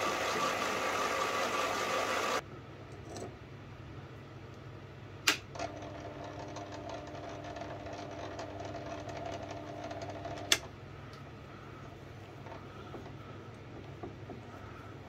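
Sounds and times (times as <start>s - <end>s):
lathe motor humming: 0.0s - 2.4s
lathe switch click: 5.2s - 5.5s.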